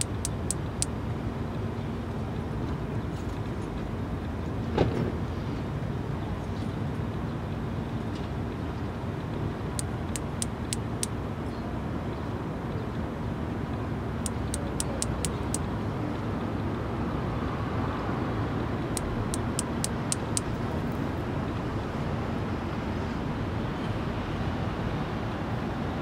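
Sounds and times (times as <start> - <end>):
cicada clicking its wings: 0.0 - 0.9, 14.3 - 15.6, 19.0 - 20.6.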